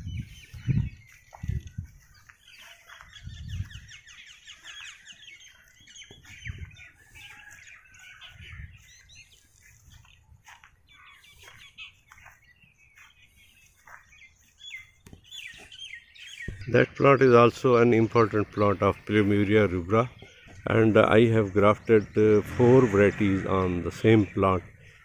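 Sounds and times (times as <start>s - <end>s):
small birds chirping: 0.0s - 25.0s
low rumbles: 16.5s - 25.0s.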